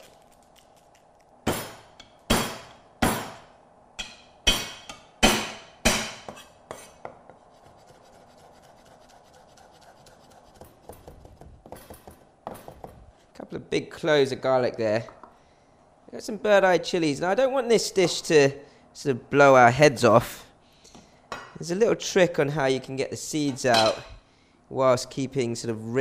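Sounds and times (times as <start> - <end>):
cleaver chopping on wooden block: 4.5 - 7.3.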